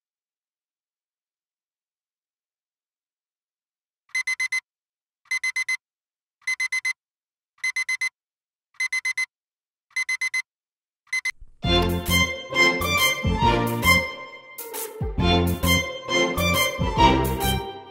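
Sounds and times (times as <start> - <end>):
phone alarm beeping: 4.1 - 4.6, 5.3 - 5.8, 6.4 - 7.0, 7.6 - 8.1, 8.8 - 9.3, 10.0 - 10.4, 11.1 - 11.4
music: 11.6 - 17.9.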